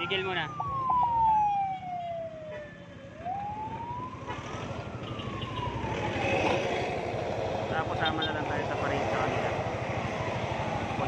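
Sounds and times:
siren wailing: 0.0s - 7.0s, 10.0s - 11.0s.

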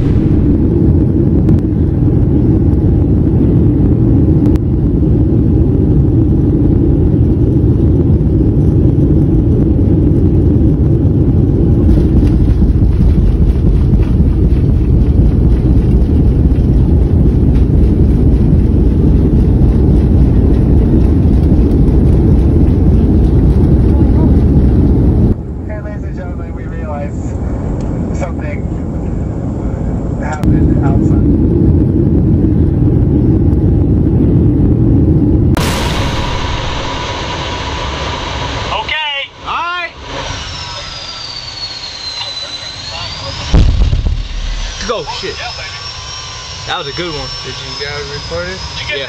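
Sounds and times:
airliner engines and airflow roaring: 0.0s - 49.0s.

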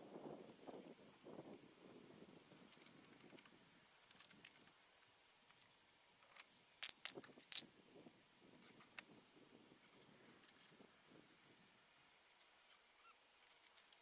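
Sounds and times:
wooden blocks knocking together: 6.8s - 7.6s.

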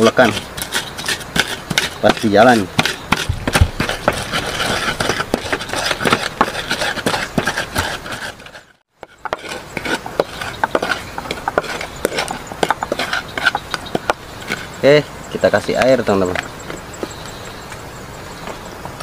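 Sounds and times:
pestle scraping paste into pot: 0.0s - 14.8s
stone pestle grinding in mortar: 0.0s - 14.8s.

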